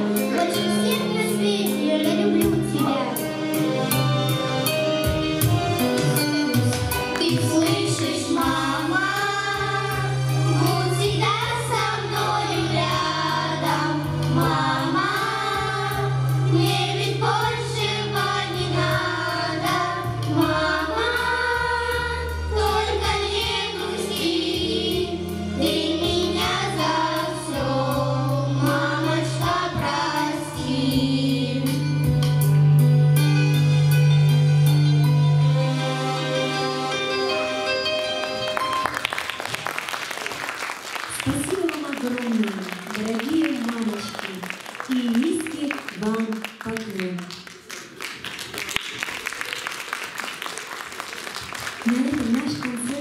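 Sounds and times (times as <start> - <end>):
instrumental accompaniment: 0.0 - 40.0
group singing into microphones: 7.6 - 31.8.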